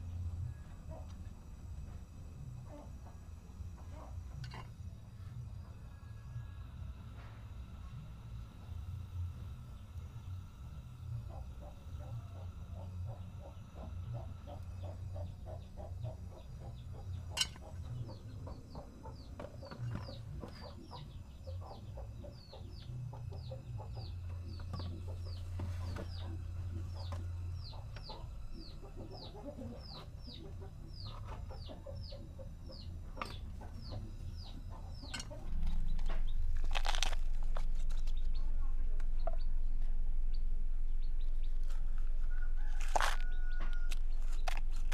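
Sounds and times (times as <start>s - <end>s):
loud steady noise: 0.0s - 43.1s
low steady rumble: 0.0s - 44.9s
bird chirping: 9.5s - 37.0s.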